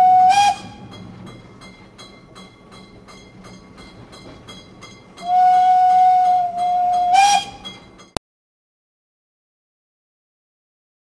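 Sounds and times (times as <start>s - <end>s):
steam locomotive whistle: 0.0s - 0.9s, 5.2s - 7.8s.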